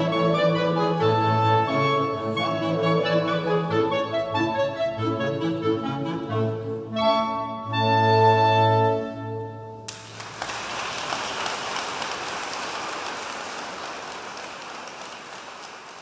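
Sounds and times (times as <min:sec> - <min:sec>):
clarinet ensemble chord: 0:00.0 - 0:09.8
audience applause: 0:09.9 - 0:16.0.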